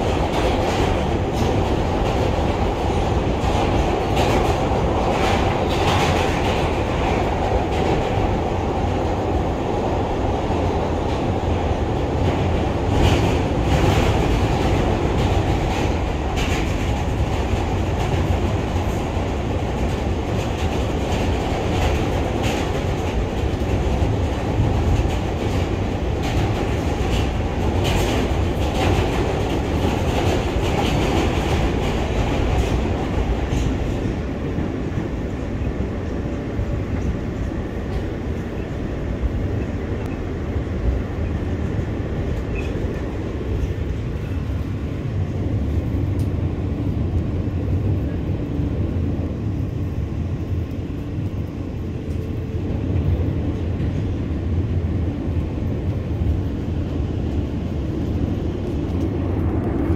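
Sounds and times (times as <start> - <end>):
subway wheels rumbling on rails: 0.0 - 59.9.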